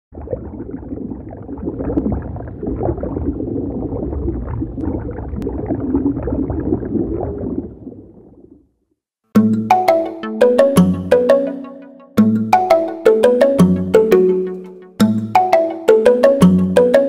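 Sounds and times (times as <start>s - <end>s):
underwater bubbles gurgling: 0.1s - 8.7s.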